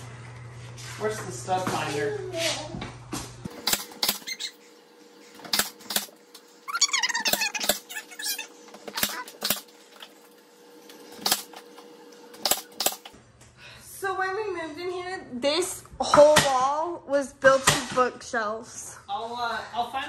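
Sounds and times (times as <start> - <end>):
nail gun firing: 3.6 - 4.3, 12.4 - 13.1.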